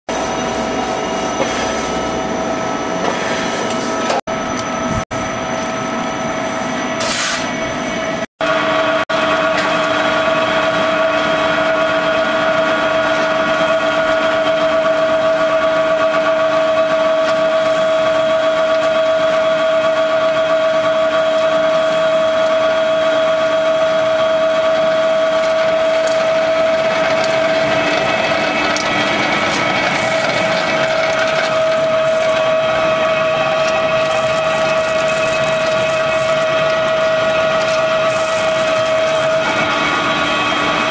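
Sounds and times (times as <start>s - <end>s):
pellet mill machine drone: 0.1s - 40.9s.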